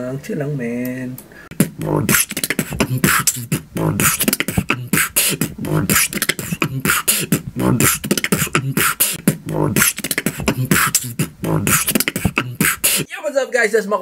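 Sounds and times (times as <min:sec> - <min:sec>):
beatboxing drum beat: 0:01.5 - 0:13.1
vocal bass line: 0:01.5 - 0:13.1.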